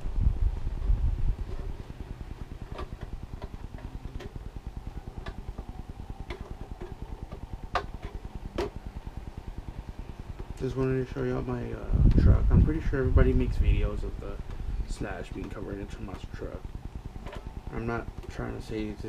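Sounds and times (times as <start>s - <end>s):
fast pulsing fan hum: 0.0s - 19.0s
plastic clicks and taps: 5.2s - 8.8s
plastic shell thumps: 5.2s - 8.8s.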